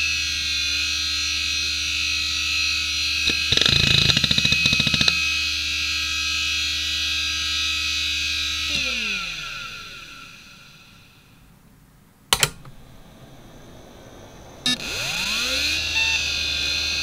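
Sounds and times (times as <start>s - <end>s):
hard drive high whine: 0.0s - 17.0s.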